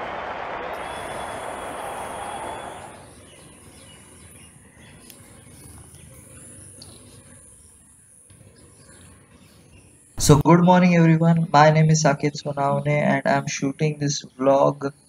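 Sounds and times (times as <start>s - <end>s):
loud rushing noise: 0.0s - 3.0s.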